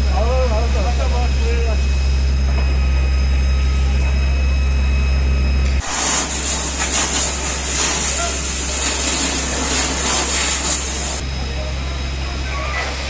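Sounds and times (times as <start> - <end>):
fire hose spraying hiss: 5.8 - 11.2.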